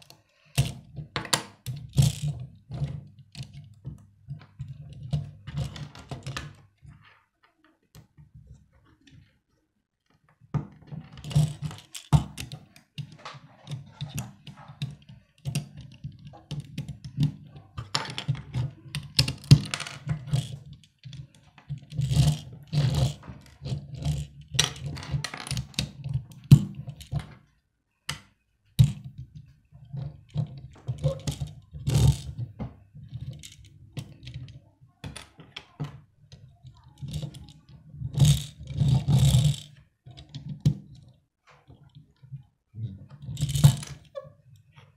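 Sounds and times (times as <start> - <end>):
plastic bricks clicking and rattling: 29.9 - 36.0, 43.2 - 44.1.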